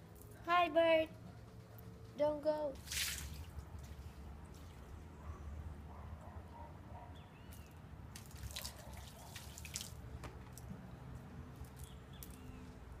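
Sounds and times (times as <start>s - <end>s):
water dripping on wooden deck: 2.8s - 4.9s, 7.6s - 10.7s, 11.6s - 12.5s.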